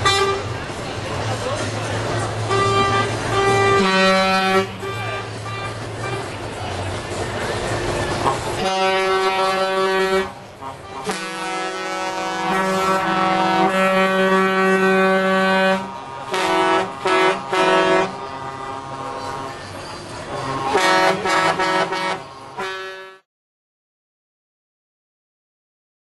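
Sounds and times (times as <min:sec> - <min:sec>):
truck air horn blasts: 0:00.0 - 0:00.6, 0:02.4 - 0:06.4, 0:08.1 - 0:19.7, 0:20.3 - 0:23.2.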